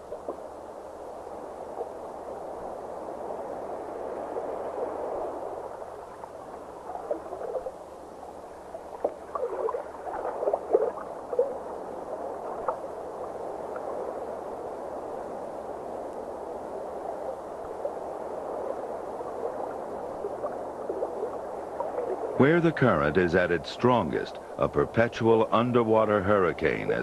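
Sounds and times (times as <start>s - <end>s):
muffled rush of water: 0.0s - 27.0s
bubbling gurgles: 8.6s - 14.1s, 18.8s - 23.2s.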